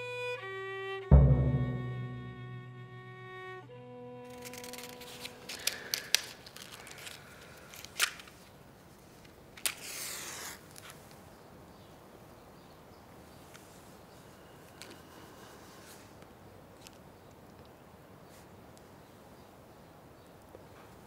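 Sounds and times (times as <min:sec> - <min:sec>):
violin music: 0:00.0 - 0:05.6.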